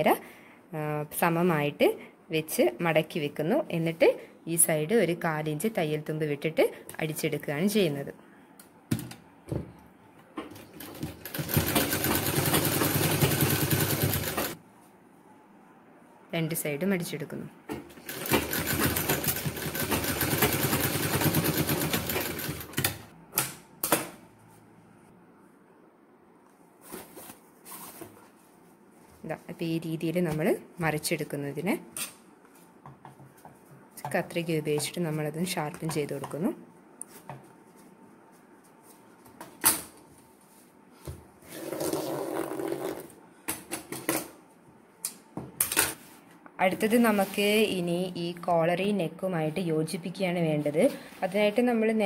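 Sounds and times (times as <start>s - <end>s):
sewing machine stitching clatter: 10.6s - 14.6s, 18.0s - 23.0s.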